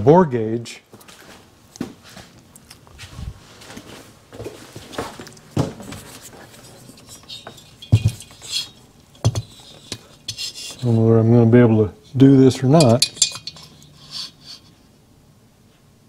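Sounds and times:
metal clinks and knocks: 5.2s - 11.0s, 12.5s - 14.7s.

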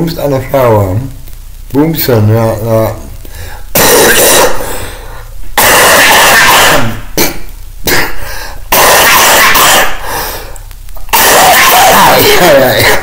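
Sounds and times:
man coughing: 3.8s - 4.8s, 5.6s - 8.2s, 11.1s - 13.0s.

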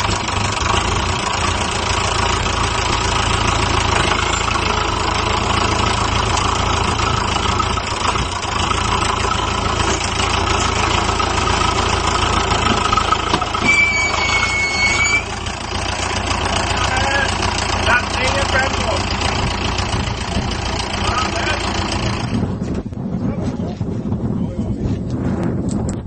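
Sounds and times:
tractor engine running under load: 0.0s - 23.1s.

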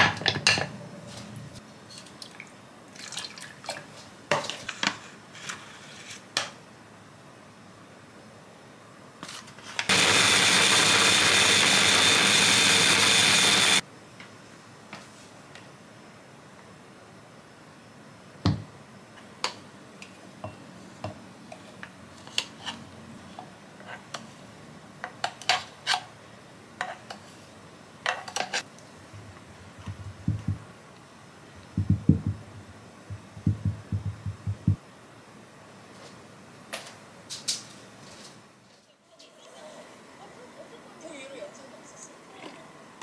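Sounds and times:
bowl tapped with low thuds: 29.8s - 30.6s, 31.7s - 34.8s.

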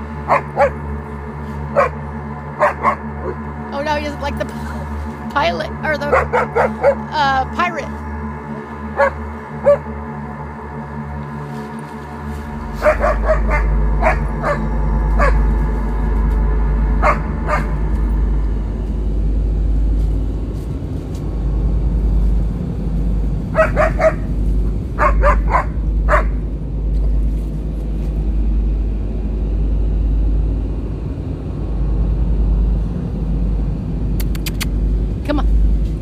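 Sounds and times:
steady low rumble: 0.0s - 36.0s
dog barking: 0.3s - 0.8s, 1.8s - 2.0s, 6.1s - 7.1s, 9.0s - 9.8s, 12.8s - 14.6s, 17.0s - 17.7s, 23.6s - 24.3s, 25.0s - 26.4s.

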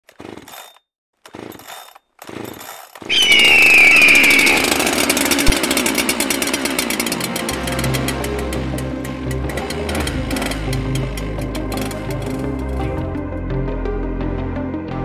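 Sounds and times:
chainsaw engine running: 2.3s - 12.8s.

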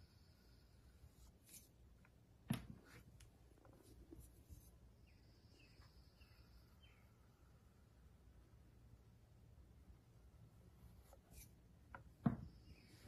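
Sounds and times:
loop tool scraping clay: 0.6s - 2.2s, 10.7s - 11.7s.

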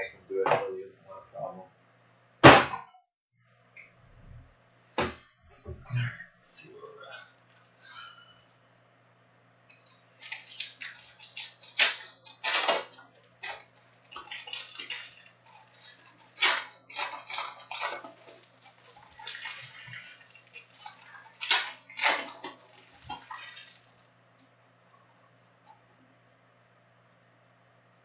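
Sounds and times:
foil wrappers crinkling and tearing: 9.7s - 24.0s.

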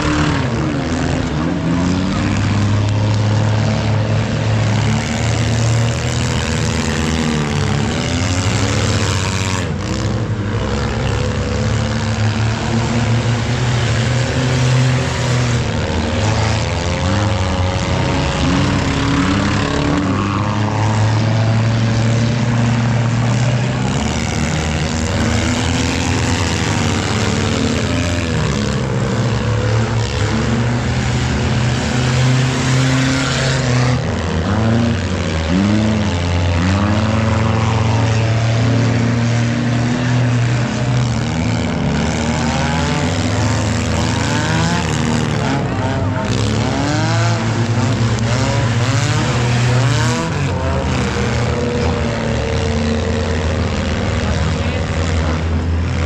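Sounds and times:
car engines revving: 0.0s - 56.0s.

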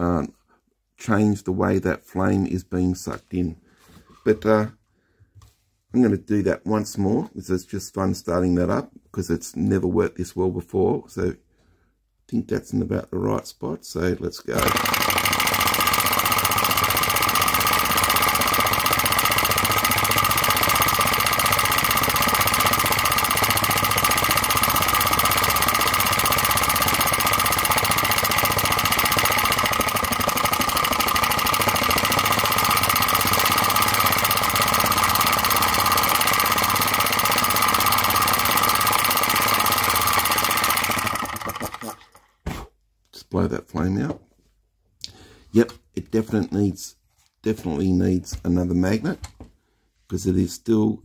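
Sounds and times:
small piston engine running fast: 14.6s - 42.2s.

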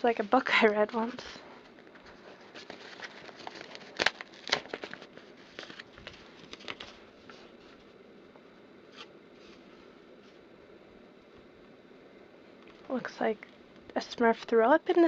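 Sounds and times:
paper envelope crackling: 2.0s - 7.8s.

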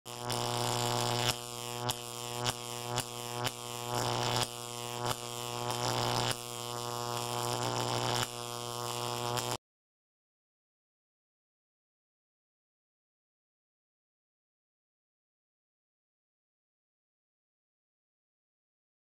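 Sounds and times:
deep electric buzzing hum: 0.1s - 9.6s.

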